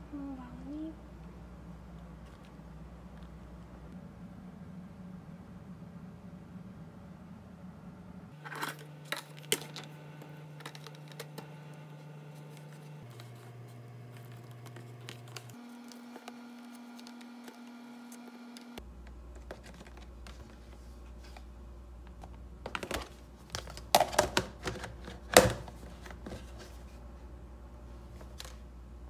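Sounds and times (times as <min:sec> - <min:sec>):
faint low hum: 0:00.0 - 0:29.0.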